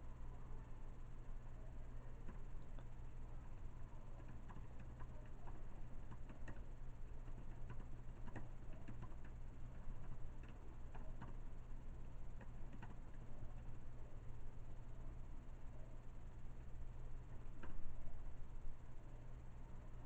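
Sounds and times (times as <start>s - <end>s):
steady low hum: 0.0s - 20.0s
keyboard key clicks: 4.2s - 9.4s, 10.0s - 11.4s, 12.4s - 13.0s.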